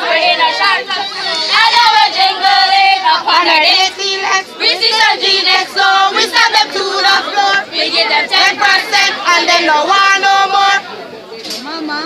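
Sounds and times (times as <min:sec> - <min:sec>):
girls singing a cheerleading chant: 0:00.0 - 0:10.8.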